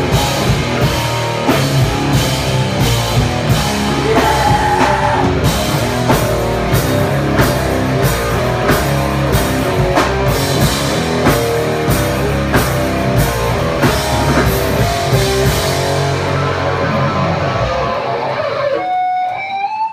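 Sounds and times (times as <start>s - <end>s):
distorted guitars and bass: 0.0s - 19.9s
drums: 0.0s - 19.9s.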